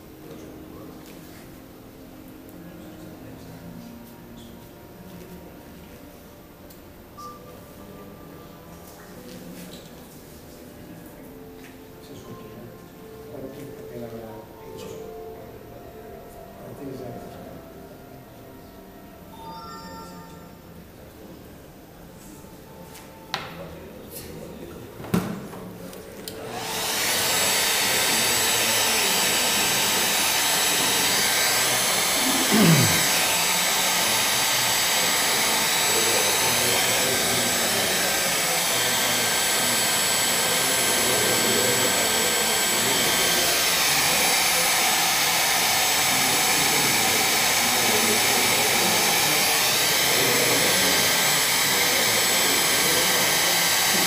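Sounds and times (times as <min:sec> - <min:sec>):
hair dryer whine: 0:26.3 - 0:54.0.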